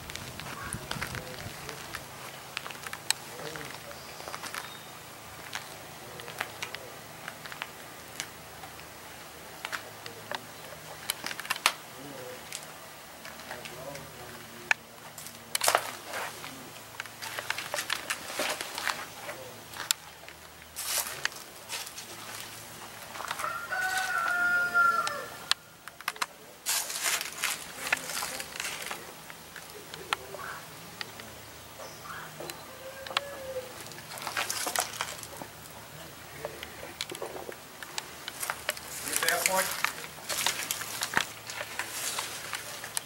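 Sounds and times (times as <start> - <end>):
rustling: 0.0 - 31.4, 32.2 - 43.0
rooster crowing: 23.2 - 25.5, 32.0 - 33.8
footsteps on dusty floor: 38.3 - 43.0.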